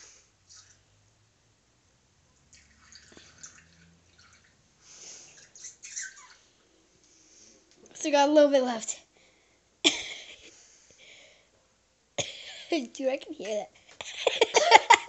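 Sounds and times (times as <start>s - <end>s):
faint wet squirting and slurping: 2.6s - 6.5s.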